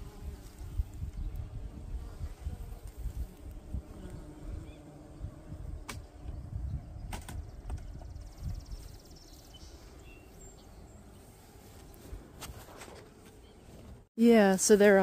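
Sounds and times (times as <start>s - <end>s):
wind rumbling on microphone: 0.0s - 14.1s.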